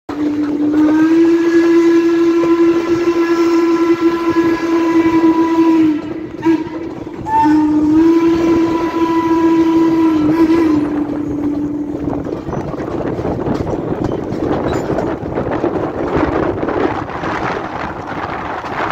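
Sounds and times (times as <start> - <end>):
steam whistle blasts: 0.1 - 12.4
train running noise: 0.1 - 18.9.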